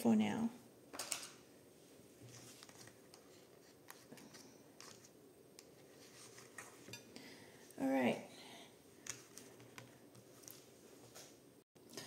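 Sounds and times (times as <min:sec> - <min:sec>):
faint paper rustles: 0:02.2 - 0:07.0, 0:09.0 - 0:11.4.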